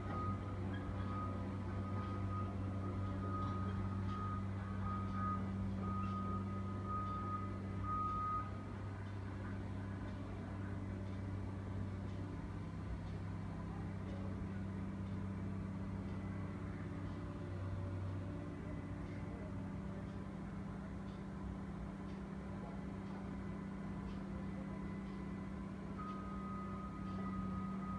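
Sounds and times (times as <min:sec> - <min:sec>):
reversing alarm beeping: 0:00.0 - 0:08.7, 0:24.0 - 0:27.9
heavy machinery humming: 0:00.0 - 0:27.9.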